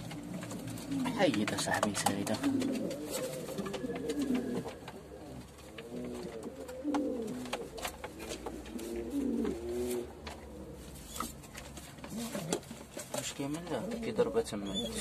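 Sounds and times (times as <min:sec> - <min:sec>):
sharp clicks and knocks: 0:00.0 - 0:08.8
pigeons cooing: 0:00.0 - 0:15.0.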